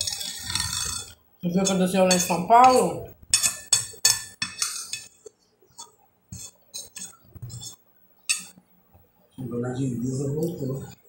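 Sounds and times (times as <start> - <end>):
fork clinking on glass plate: 3.4 - 5.1, 8.3 - 8.6.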